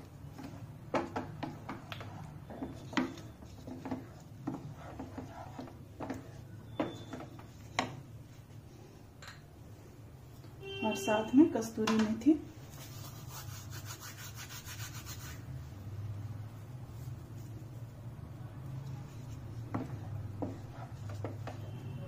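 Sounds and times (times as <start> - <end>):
spoon stirring in a pan: 0.0 - 8.4, 19.2 - 22.0.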